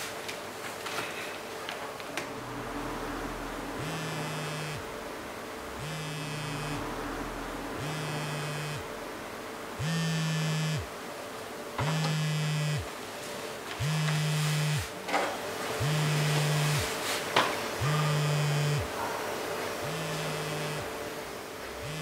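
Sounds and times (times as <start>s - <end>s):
smartphone vibrating: 3.8s - 4.9s, 5.8s - 9.0s, 9.8s - 10.9s, 11.8s - 12.9s, 13.8s - 14.9s, 15.8s - 16.9s, 17.8s - 18.9s, 19.8s - 20.9s, 21.8s - 22.0s.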